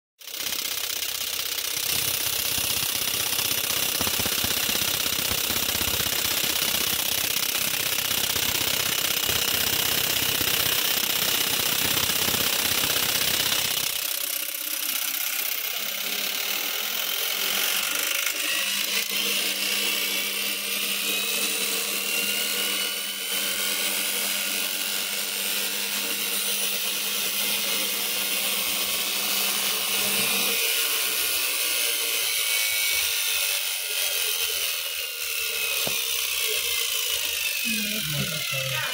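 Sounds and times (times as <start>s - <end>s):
washing machine motor rattling: 0.2s - 20.4s
motor hum with whining tones: 0.2s - 38.9s.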